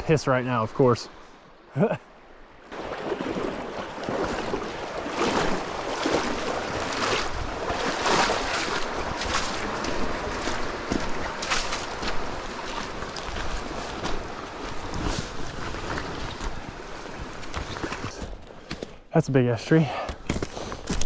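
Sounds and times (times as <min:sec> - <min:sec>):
river rushing: 0:02.6 - 0:18.1
footsteps crunching on gravel: 0:06.0 - 0:16.6.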